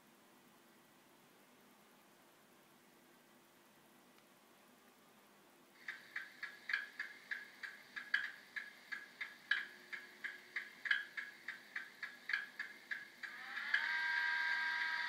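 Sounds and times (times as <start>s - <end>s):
steady electronic ticking: 5.8s - 15.0s.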